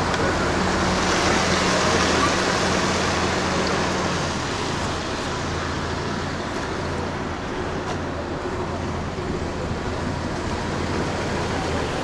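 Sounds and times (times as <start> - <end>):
van engine idling: 0.0 - 12.0.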